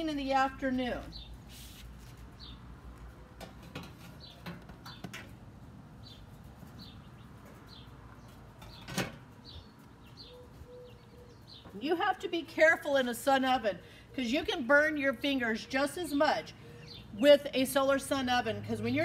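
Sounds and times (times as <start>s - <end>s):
bird chirping: 3.9s - 5.3s, 6.0s - 12.3s.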